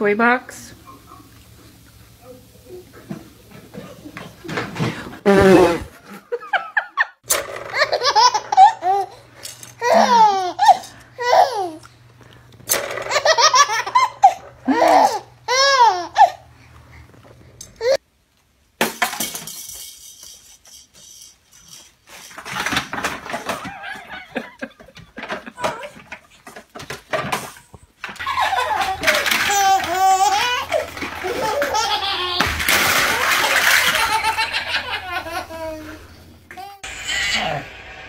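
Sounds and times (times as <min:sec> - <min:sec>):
baby laughing: 0:07.6 - 0:11.8, 0:13.0 - 0:16.5, 0:28.2 - 0:37.6.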